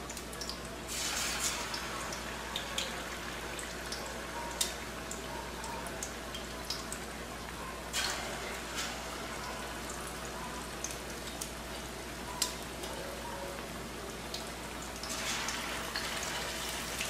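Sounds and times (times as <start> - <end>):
fish deep-frying in oil: 0.0 - 17.0.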